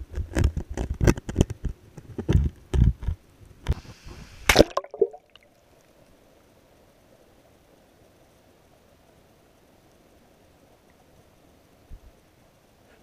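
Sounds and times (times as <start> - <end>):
water sloshing and bubbling: 3.9 - 6.4.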